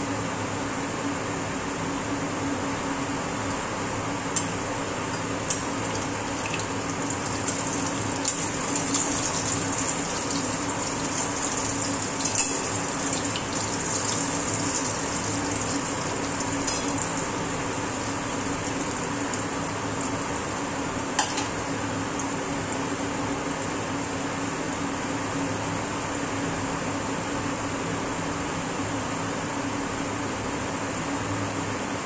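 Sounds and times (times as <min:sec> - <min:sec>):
slices sizzling in hot oil: 0:05.4 - 0:20.6.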